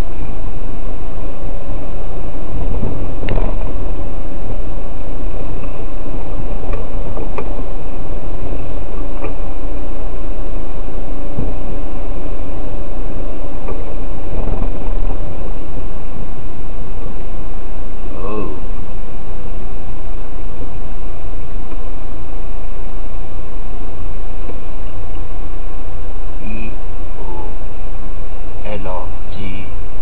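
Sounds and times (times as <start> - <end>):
car engine and road noise: 0.0 - 28.7
constant whine: 0.0 - 30.0.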